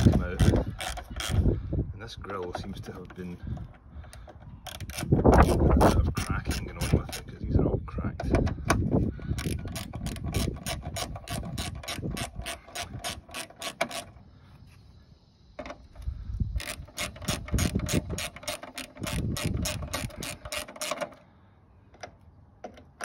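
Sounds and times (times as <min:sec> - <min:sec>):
ratchet clicking rapidly: 0:00.0 - 0:01.5, 0:04.7 - 0:07.4, 0:09.4 - 0:14.2, 0:16.6 - 0:21.2.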